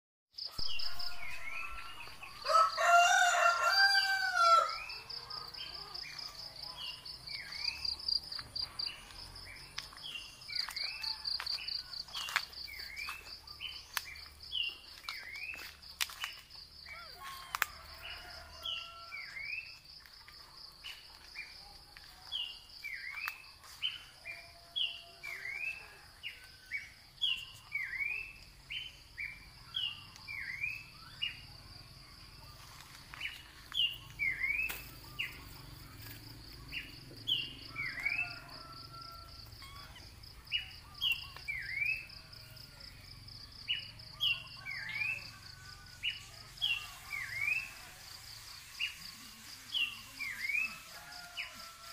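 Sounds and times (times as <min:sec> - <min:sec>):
rooster crowing: 0:00.6 - 0:05.2, 0:10.5 - 0:12.4, 0:17.0 - 0:19.6, 0:37.6 - 0:40.0, 0:50.3 - 0:51.9
high insect trill: 0:44.6 - 0:51.9.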